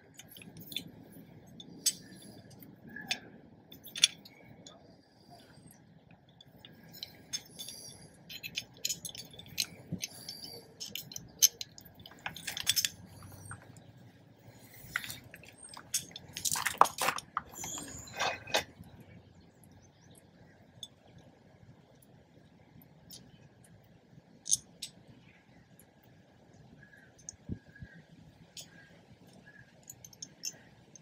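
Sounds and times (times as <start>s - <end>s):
metal parts clinking: 0.1s - 4.8s, 6.6s - 13.9s, 14.5s - 18.9s, 24.4s - 25.0s, 29.4s - 31.0s.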